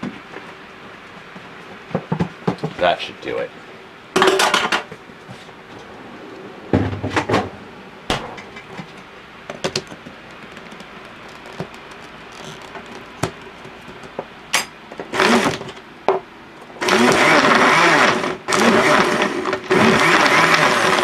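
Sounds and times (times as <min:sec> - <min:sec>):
plastic clicks and knocks: 0:09.5 - 0:14.3
blender motor: 0:15.1 - 0:15.7, 0:16.8 - 0:21.0.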